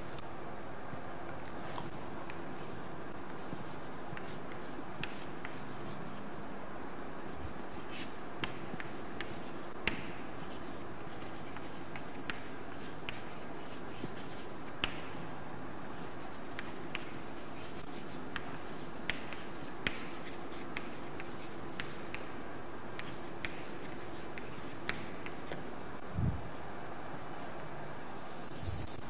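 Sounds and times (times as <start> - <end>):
steady background hiss: 0.0 - 29.0
chalk tapping on board: 2.3 - 6.0, 7.4 - 15.1, 16.0 - 22.3, 23.0 - 25.6
chalk scratching on chalkboard: 2.6 - 6.2, 7.3 - 15.0, 15.9 - 22.3, 23.0 - 25.6, 28.1 - 29.0.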